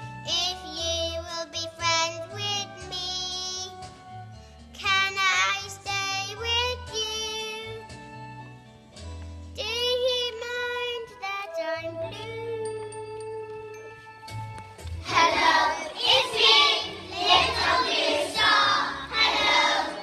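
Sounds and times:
instrumental accompaniment: 0:12.1 - 0:20.0.

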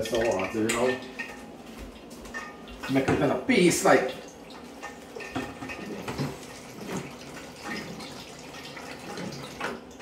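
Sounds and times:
water pouring into metal bowl: 0:04.3 - 0:10.0.

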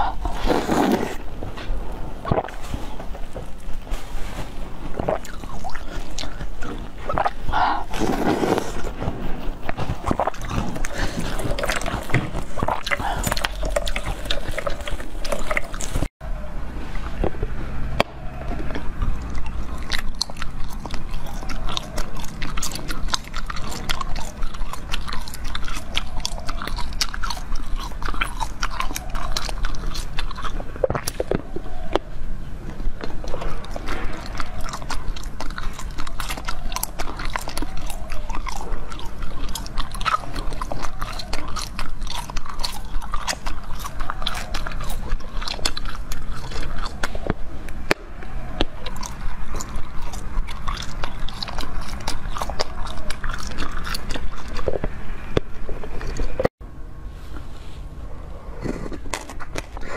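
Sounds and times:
chewing jelly with crackles: 0:00.0 - 0:16.2, 0:17.0 - 0:56.5, 0:58.4 - 0:59.9.

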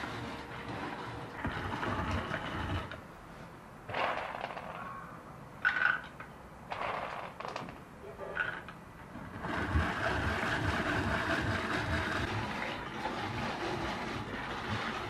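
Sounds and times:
drum grater grinding nuts: 0:00.0 - 0:03.0, 0:09.1 - 0:15.0.

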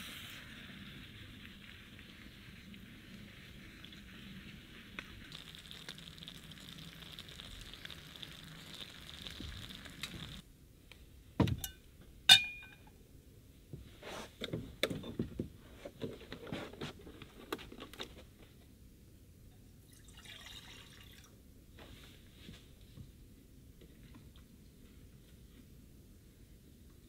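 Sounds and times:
food sizzling in frying pan: 0:05.2 - 0:10.4
metal pot clanking: 0:11.6 - 0:12.9.

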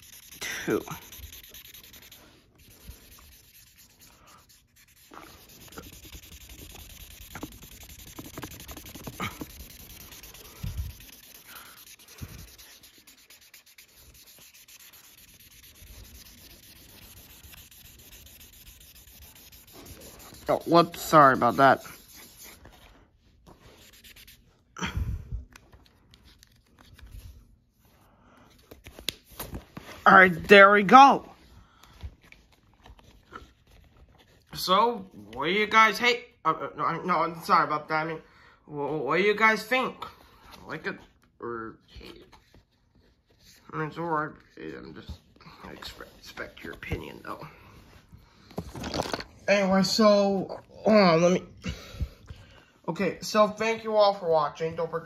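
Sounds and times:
marker scribbling on paper: 0:00.0 - 0:22.9, 0:23.6 - 0:24.5
paper handling: 0:25.5 - 0:27.5, 0:28.6 - 0:30.5.

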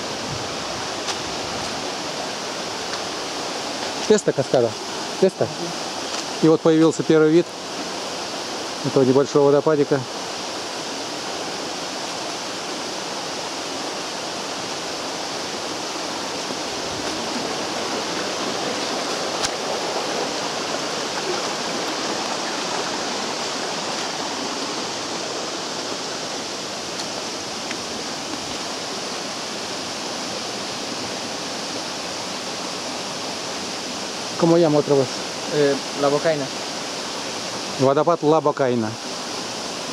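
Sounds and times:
waterfall rushing over rocks: 0:00.0 - 0:39.9.

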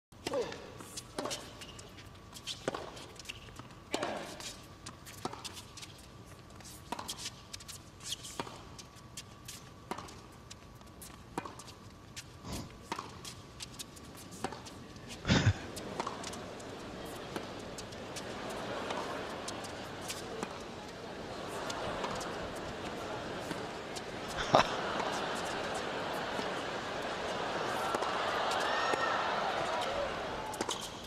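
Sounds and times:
racket hitting tennis ball: 0:15.7 - 0:31.0.

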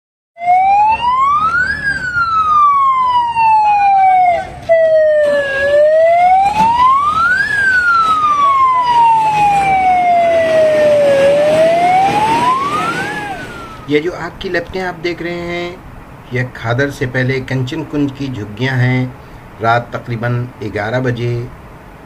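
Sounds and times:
fire engine siren wailing: 0:00.4 - 0:14.0.

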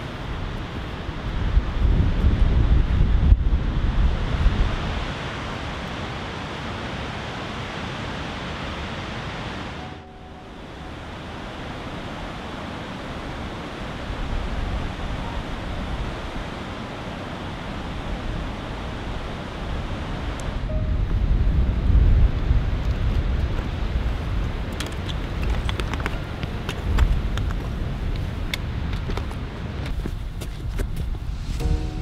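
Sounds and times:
waterfall and river rushing: 0:04.0 - 0:21.0, 0:31.3 - 0:32.0.

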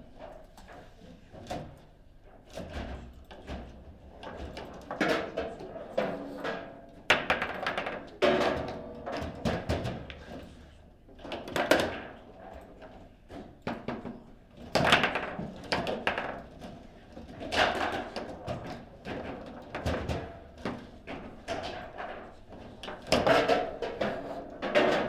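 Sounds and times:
foosball rods clacking: 0:06.0 - 0:09.7.

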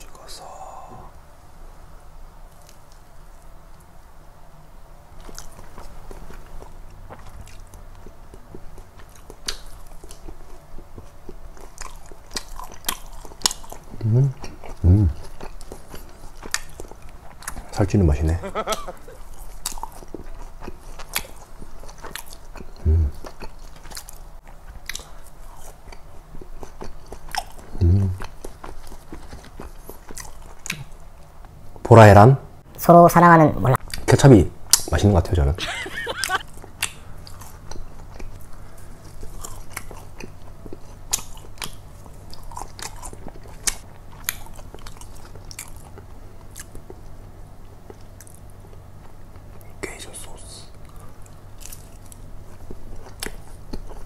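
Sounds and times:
chewing with mouth clicks: 0:05.2 - 0:17.8, 0:19.1 - 0:31.6, 0:36.2 - 0:50.0, 0:50.7 - 0:54.0
man humming: 0:14.0 - 0:15.2, 0:22.8 - 0:23.2, 0:27.8 - 0:28.2.

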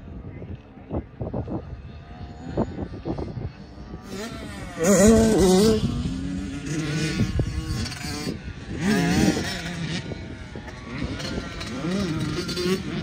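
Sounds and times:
wind buffeting microphone: 0:00.0 - 0:13.0
dirt bike engine revving: 0:03.8 - 0:13.0.

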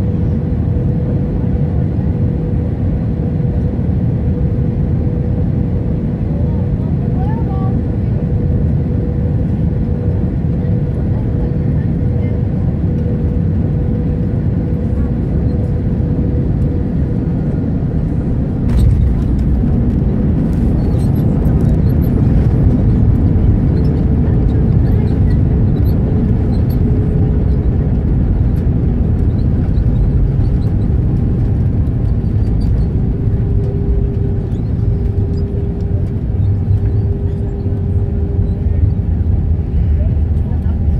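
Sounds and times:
faint engine tone: 0:03.4 - 0:40.9
light cabin rattles: 0:18.6 - 0:39.0.

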